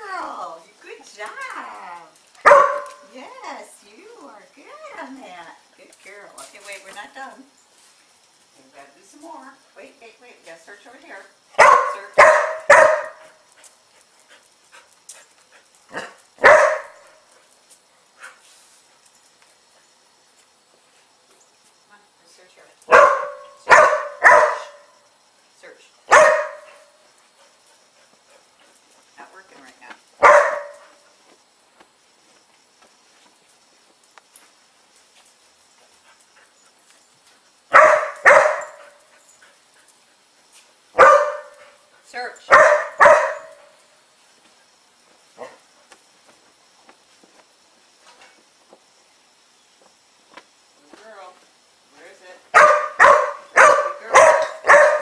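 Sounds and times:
dog barking: 0:02.4 - 0:03.0, 0:11.6 - 0:13.3, 0:15.9 - 0:17.0, 0:22.9 - 0:24.9, 0:26.1 - 0:26.8, 0:30.2 - 0:30.9, 0:37.7 - 0:38.9, 0:41.0 - 0:41.6, 0:42.5 - 0:43.6, 0:52.5 - 0:55.0
faint light ticks: 0:34.0 - 0:34.5.

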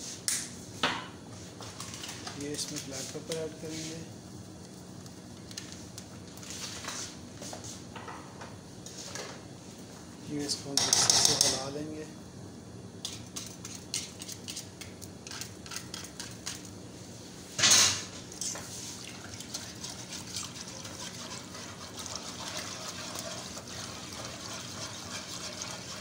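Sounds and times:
whisk scraping saucepan: 0:13.0 - 0:16.7, 0:18.4 - 0:26.0.

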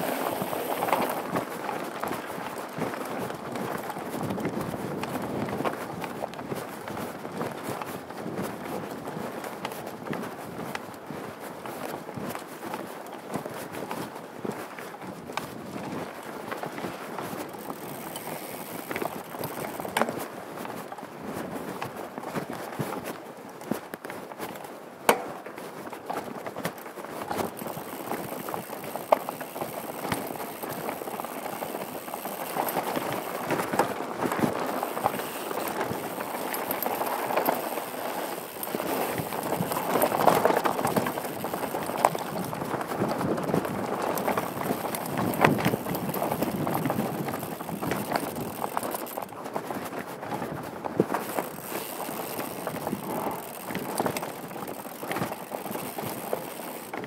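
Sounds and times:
bike tyres crunching over gravel: 0:00.0 - 0:57.0
bike hitting rocks: 0:17.5 - 0:20.0, 0:44.0 - 0:49.3, 0:51.2 - 0:57.0.

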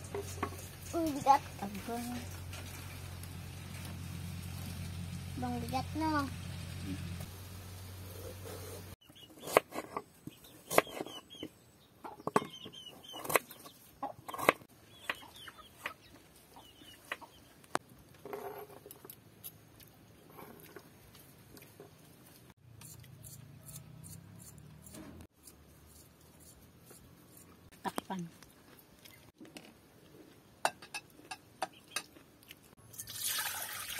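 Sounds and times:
chickens clucking: 0:12.1 - 0:17.6.

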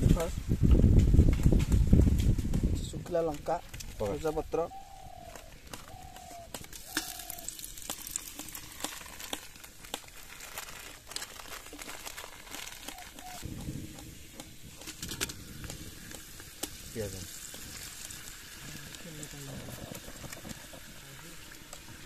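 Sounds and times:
spices sizzling in hot oil: 0:06.0 - 0:22.0.

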